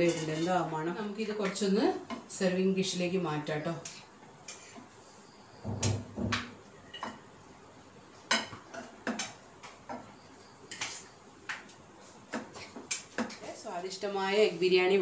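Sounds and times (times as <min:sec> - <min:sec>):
metal spoon clinking and scraping pan: 0:00.0 - 0:00.5, 0:04.5 - 0:04.8.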